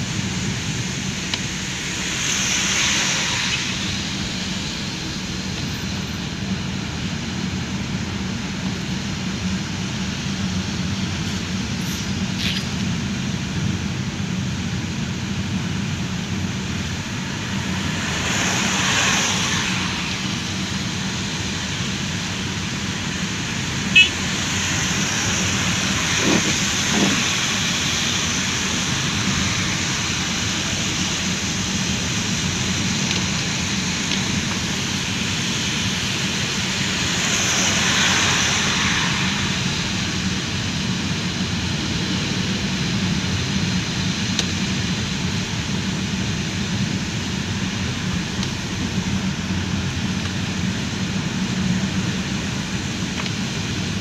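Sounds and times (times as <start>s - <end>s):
low engine hum: 0.0s - 54.0s
tyre and rain hiss: 0.0s - 54.0s.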